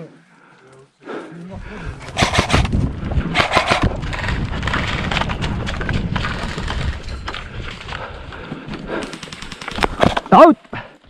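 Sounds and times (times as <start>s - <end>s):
quick footsteps on ground: 1.2s - 10.9s.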